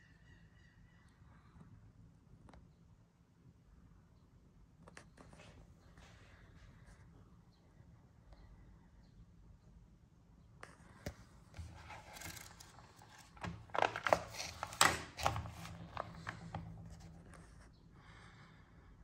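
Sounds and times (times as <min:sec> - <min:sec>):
paper pages rustling and crinkling: 0:11.0 - 0:17.6.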